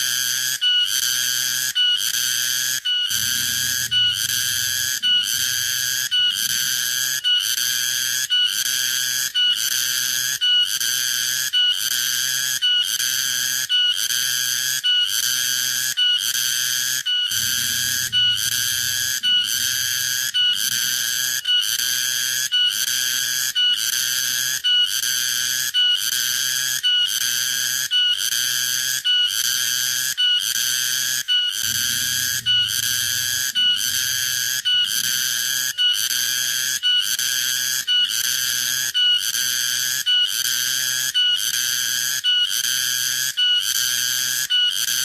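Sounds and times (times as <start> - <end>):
cicada buzzing: 17.3 - 20.7.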